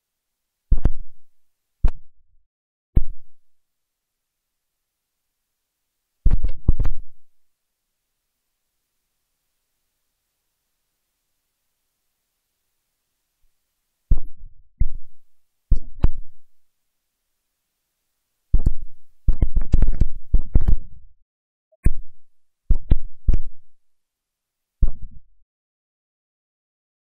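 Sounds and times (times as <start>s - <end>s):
low thumps on microphone: 0.7s - 1.2s, 3.0s - 3.4s, 6.3s - 7.2s, 14.1s - 16.4s, 18.5s - 21.0s, 21.8s - 23.6s, 24.8s - 25.2s.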